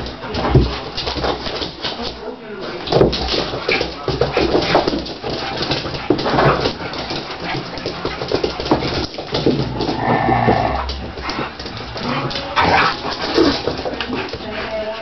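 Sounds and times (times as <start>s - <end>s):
dogs play-fighting vocalizing: 4.4s - 15.0s.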